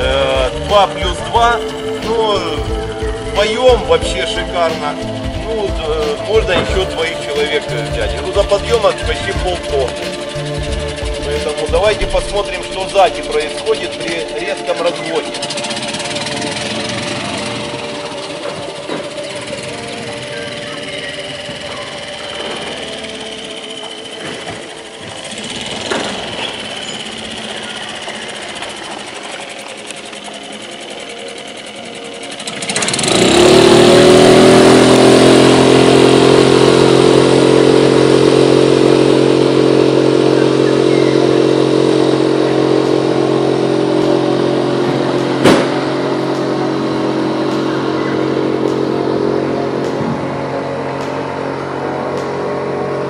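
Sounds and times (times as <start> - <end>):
outboard motor running: 0.0 - 53.0.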